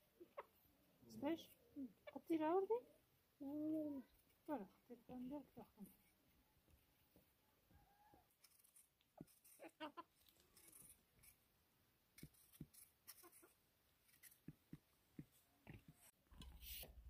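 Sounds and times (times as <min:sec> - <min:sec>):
knife peeling potatoes: 0:08.4 - 0:11.4, 0:12.1 - 0:16.9.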